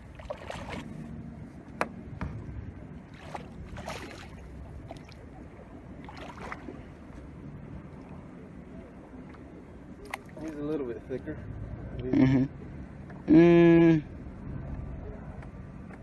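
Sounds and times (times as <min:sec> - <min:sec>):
water splashes and knocks: 0:00.0 - 0:00.9, 0:01.8 - 0:07.2.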